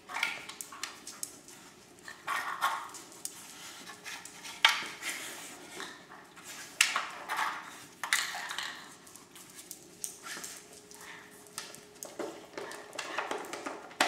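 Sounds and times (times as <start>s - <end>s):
plastic toy clattering on tile floor: 6.8s - 10.8s, 11.5s - 14.0s.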